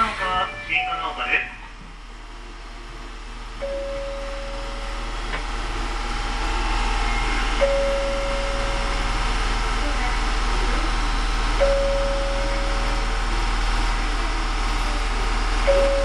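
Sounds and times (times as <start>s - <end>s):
subway train running: 0.0s - 16.0s
flat beep: 6.5s - 9.1s.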